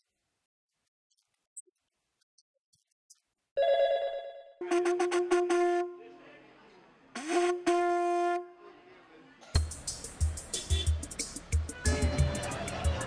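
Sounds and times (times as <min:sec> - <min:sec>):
conch shell horn blasts: 0:04.6 - 0:06.1, 0:07.2 - 0:08.6.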